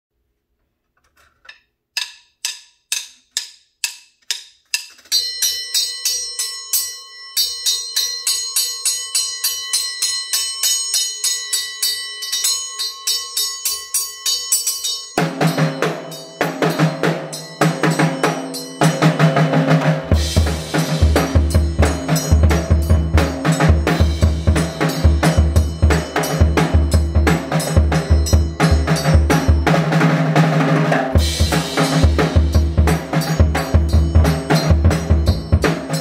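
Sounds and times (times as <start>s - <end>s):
metallic cymbal ring: 5.1s - 30.4s, 31.1s - 36.0s
drum kit playing: 15.2s - 36.0s.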